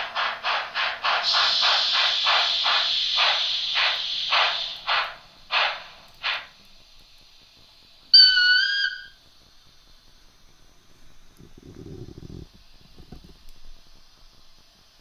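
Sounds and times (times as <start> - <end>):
steam chuffs from small speaker: 0.0 - 13.0
faint hiss: 0.0 - 15.0
chord whistle blast: 8.2 - 9.2.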